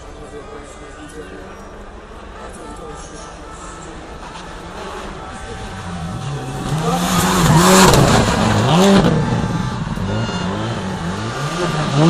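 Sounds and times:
rally car engine revving: 0:04.2 - 0:12.0.

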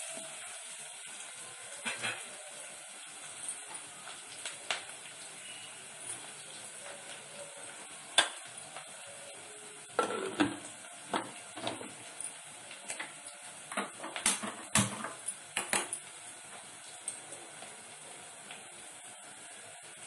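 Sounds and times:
steel cookware clattering: 0:10.0 - 0:12.0.

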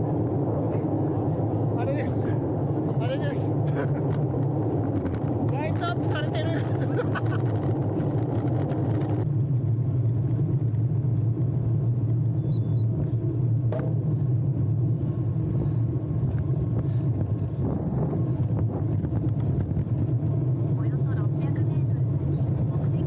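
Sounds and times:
tyres rumbling on road: 0:00.0 - 0:23.0
wind rush on microphone: 0:00.0 - 0:23.0.

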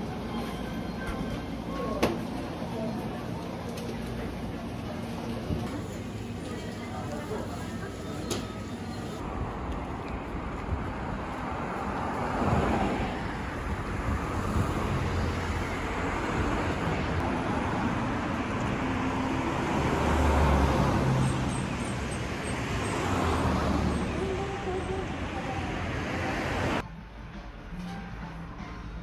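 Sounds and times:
cars passing on road: 0:09.2 - 0:29.0.

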